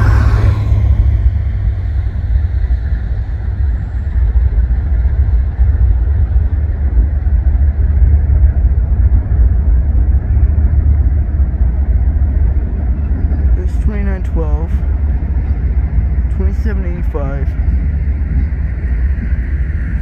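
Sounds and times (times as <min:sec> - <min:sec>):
diesel locomotives rumbling: 0:00.0 - 0:20.0.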